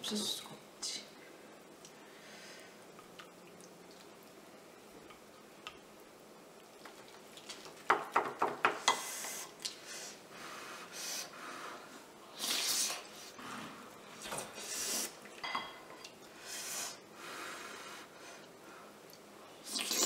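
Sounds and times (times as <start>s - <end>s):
sharp hissing breaths: 8.9s - 13.7s, 14.6s - 15.2s, 16.4s - 18.9s
slurping and lip-smacking: 19.6s - 20.0s.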